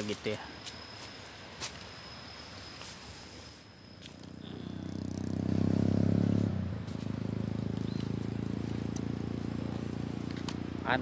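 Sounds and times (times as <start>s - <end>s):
engine fluttering drone: 3.7s - 11.0s.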